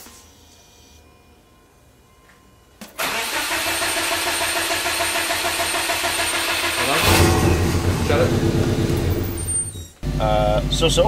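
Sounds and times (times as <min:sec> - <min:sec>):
starter cranking engine: 0:03.0 - 0:09.4
car engine running: 0:06.2 - 0:11.0.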